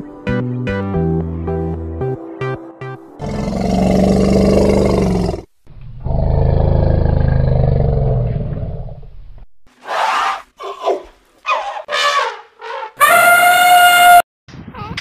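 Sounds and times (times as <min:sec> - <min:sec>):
elephant roaring: 0:03.2 - 0:09.0
elephant high-pitched calls: 0:11.5 - 0:14.2.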